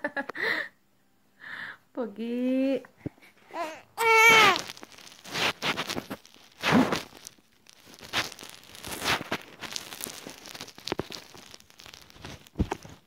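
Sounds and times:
phone rubbing against bedding: 5.2 - 7.1.

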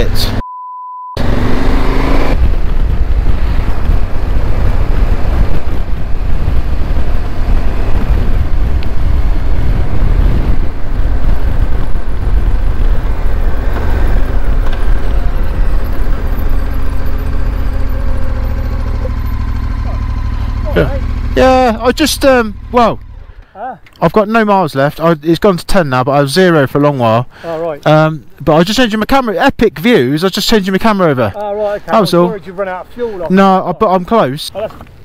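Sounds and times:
road rumble: 1.2 - 35.0
wind buffeting microphone: 1.3 - 23.4.

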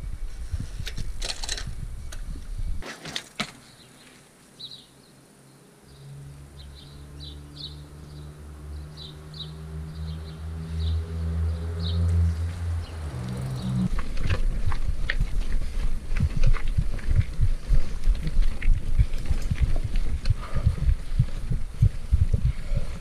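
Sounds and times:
small birds chirping: 3.6 - 14.0
bike tyres humming on asphalt: 5.7 - 23.0.

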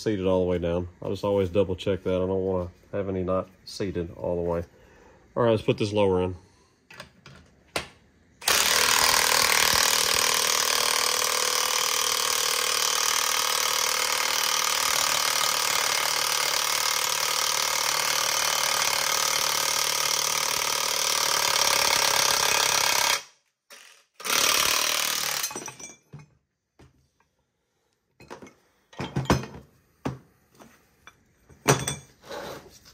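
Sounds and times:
impact wrench running: 8.4 - 25.8.

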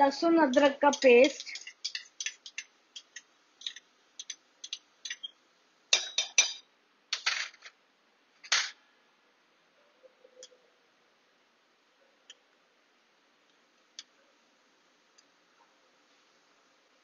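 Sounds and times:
metal spoon clinking on metal: 0.5 - 5.3, 5.9 - 6.6.

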